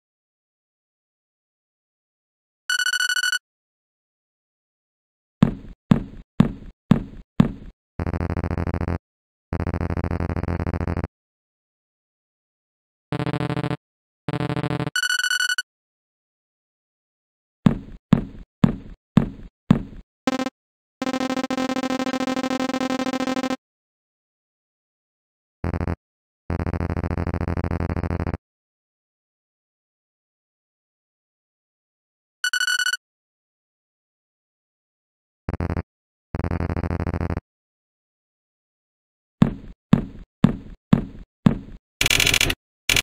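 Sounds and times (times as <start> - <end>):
sharp knocks: 5.4 - 7.7, 17.7 - 20.0.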